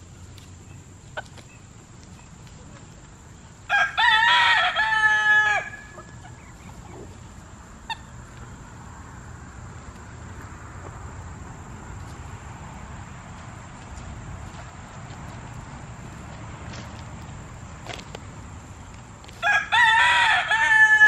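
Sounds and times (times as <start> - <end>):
faint background noise: 0.0 - 21.0
rooster crowing: 3.7 - 6.1, 19.4 - 21.0.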